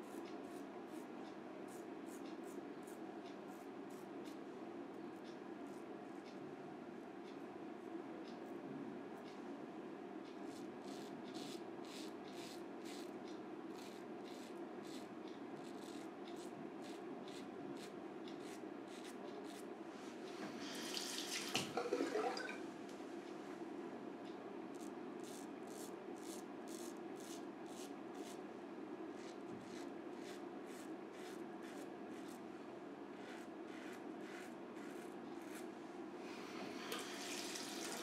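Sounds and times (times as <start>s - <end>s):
razor scraping stubble: 10.5s - 19.7s, 24.8s - 28.4s, 29.1s - 32.4s, 33.1s - 35.7s.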